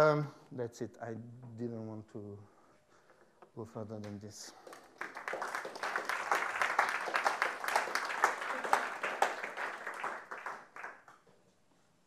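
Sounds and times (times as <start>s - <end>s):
audience applauding: 4.0s - 11.1s.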